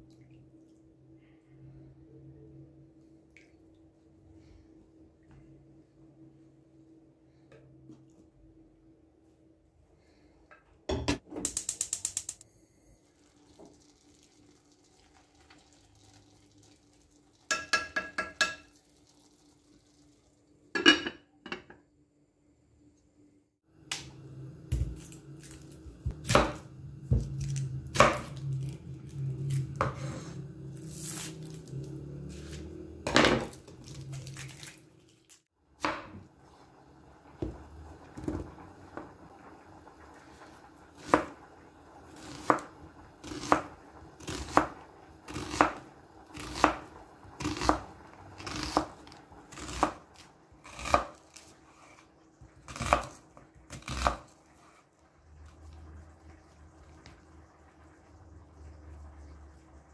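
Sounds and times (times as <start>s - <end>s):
knife cutting onion on board: 24.7s - 28.4s, 42.2s - 52.0s, 52.7s - 54.8s.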